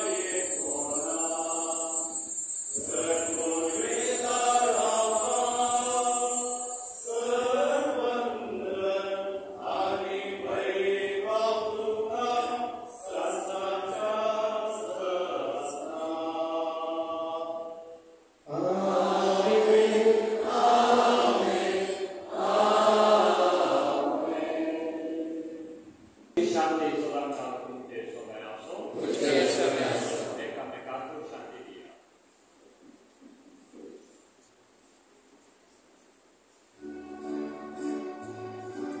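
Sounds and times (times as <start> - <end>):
voices singing slow chant: 0.0 - 25.8, 28.9 - 30.4.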